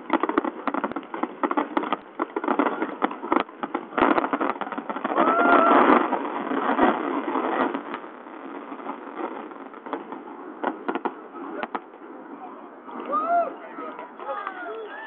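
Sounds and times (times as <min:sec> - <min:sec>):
fireworks cracking and popping: 0:00.0 - 0:15.0
crowd murmur: 0:10.4 - 0:15.0.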